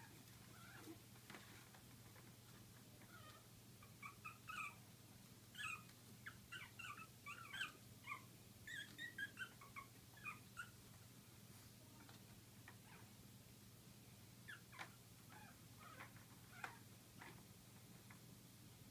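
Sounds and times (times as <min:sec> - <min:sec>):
puppies squeaking: 0:03.1 - 0:04.8, 0:05.5 - 0:10.8.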